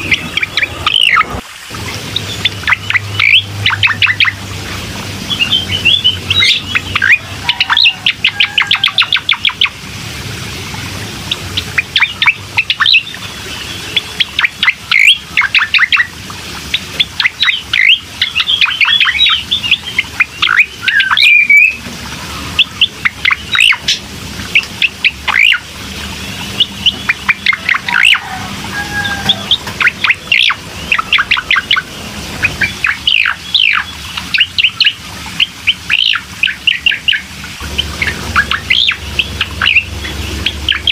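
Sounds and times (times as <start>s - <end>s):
songbird chirps and trills: 0.0s - 40.9s
slurred bird whistle: 2.2s - 4.4s, 17.2s - 21.8s, 24.8s - 25.6s, 32.6s - 37.2s.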